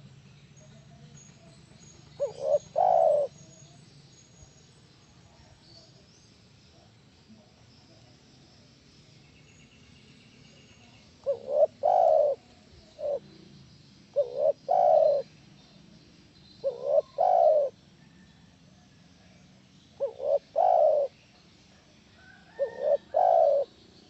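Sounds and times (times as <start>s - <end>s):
dove cooing: 2.2s - 3.3s, 11.2s - 13.3s, 14.1s - 15.3s, 16.6s - 18.2s, 20.0s - 21.2s, 22.5s - 23.8s.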